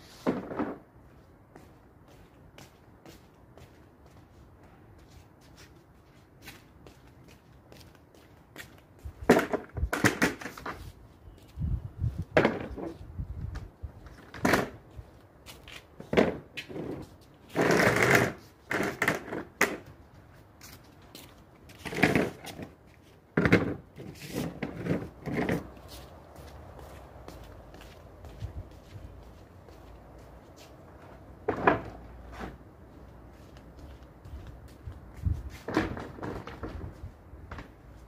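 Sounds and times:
chairs scraping on stone paving: 0:00.0 - 0:00.9, 0:09.3 - 0:11.0, 0:14.0 - 0:14.8, 0:15.8 - 0:20.0, 0:21.7 - 0:26.1, 0:30.5 - 0:33.7, 0:35.5 - 0:37.9
plastic chairs knocking together: 0:09.3 - 0:10.7, 0:23.4 - 0:23.9.

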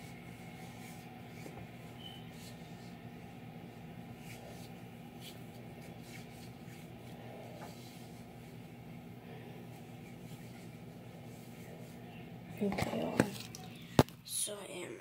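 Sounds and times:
hands rubbing lotion on skin: 0:03.9 - 0:08.7.

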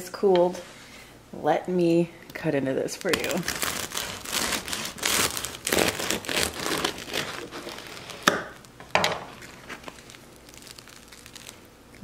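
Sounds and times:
sharp crust cracks: 0:03.0 - 0:12.0
bread knife sawing crust: 0:03.4 - 0:08.4.

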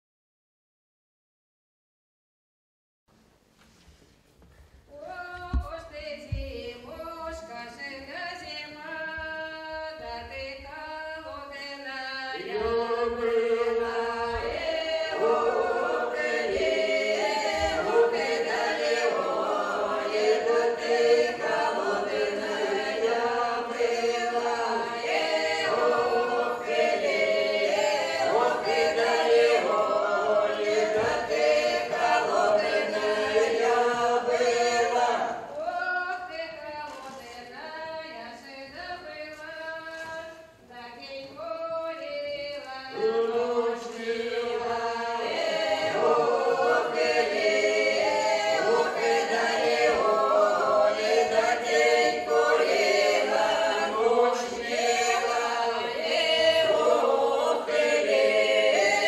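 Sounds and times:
folk ensemble singing unaccompanied: 0:04.9 - 0:59.0.

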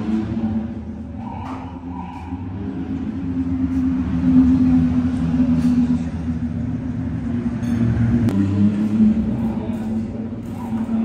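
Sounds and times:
racing car engine idling: 0:00.0 - 0:11.0.

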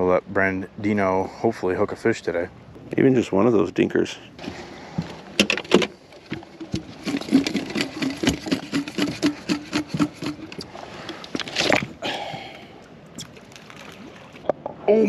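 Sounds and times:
dip net knocking and clicking: 0:05.4 - 0:10.6.

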